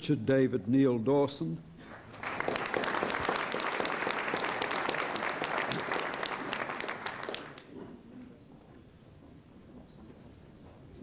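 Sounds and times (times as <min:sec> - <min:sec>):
audience applauding: 0:01.9 - 0:07.7.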